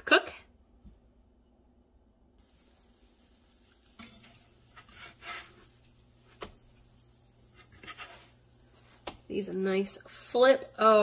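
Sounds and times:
pancakes faintly sizzling: 2.4 - 11.0
spatula scraping and tapping pan: 3.8 - 9.3.

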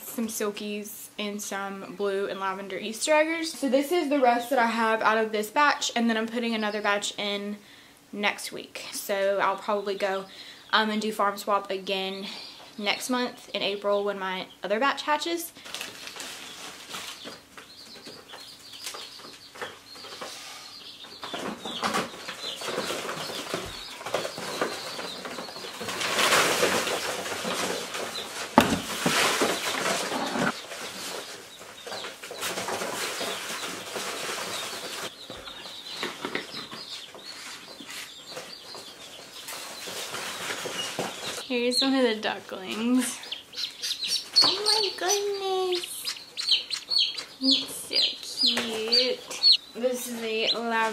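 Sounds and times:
ducklings and chicks peeping: 9.2 - 50.9
rustling and handling noises: 15.6 - 20.5, 21.2 - 41.6.

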